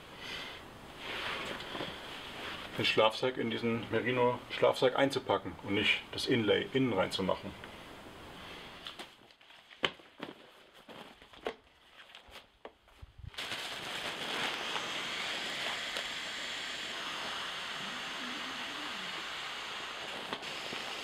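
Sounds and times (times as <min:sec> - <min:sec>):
nylon fabric crinkling: 0:08.9 - 0:14.9
rushing air hiss: 0:13.4 - 0:21.0.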